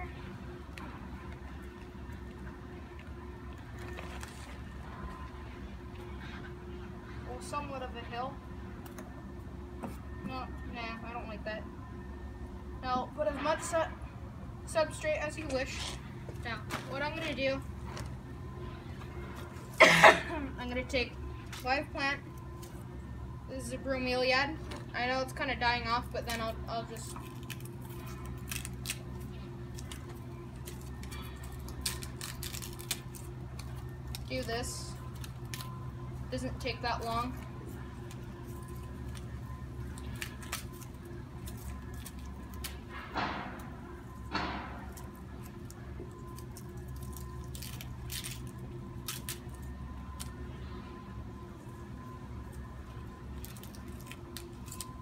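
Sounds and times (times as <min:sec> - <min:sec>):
steady low hum: 0:00.0 - 0:55.0
plant clicks and crackles: 0:26.2 - 0:35.9, 0:36.8 - 0:42.9, 0:44.8 - 0:50.5, 0:53.3 - 0:55.0.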